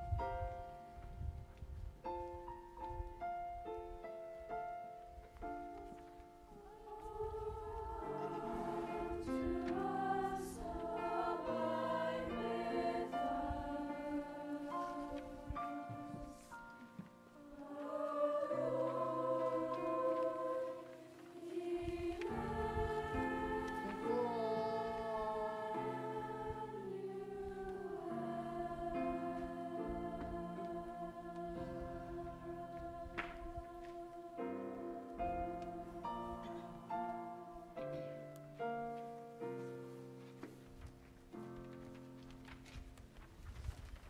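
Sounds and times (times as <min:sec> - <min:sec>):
choir singing: 0:06.4 - 0:38.8.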